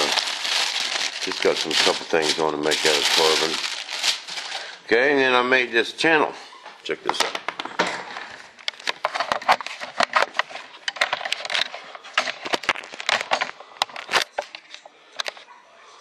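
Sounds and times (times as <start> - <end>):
small hard objects clattering: 0.0 - 4.8, 8.7 - 14.5.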